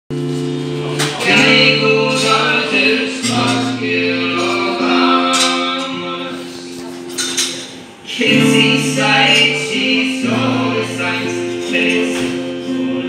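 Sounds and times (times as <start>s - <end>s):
strummed strokes: 0.1s - 13.0s.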